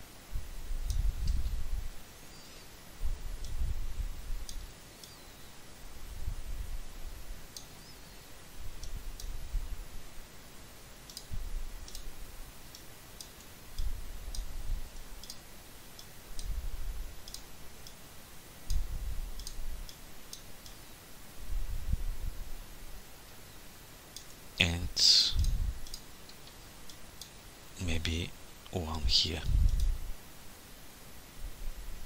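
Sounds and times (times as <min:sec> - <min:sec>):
computer mouse clicking: 0:11.0 - 0:12.1, 0:12.7 - 0:16.6, 0:17.2 - 0:18.0, 0:18.7 - 0:20.8, 0:25.4 - 0:27.4.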